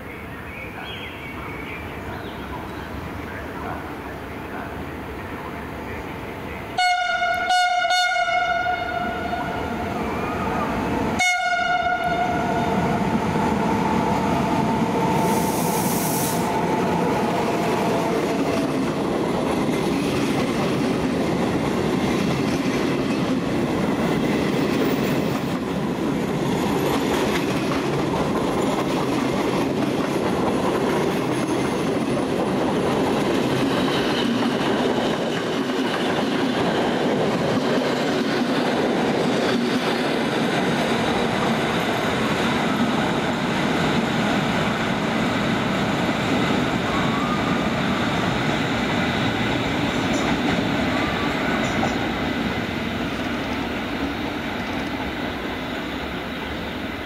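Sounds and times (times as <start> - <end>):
train horn blasts: 6.8 - 9.8, 11.2 - 12.8
train wheels clickety-clack: 16.4 - 56.7.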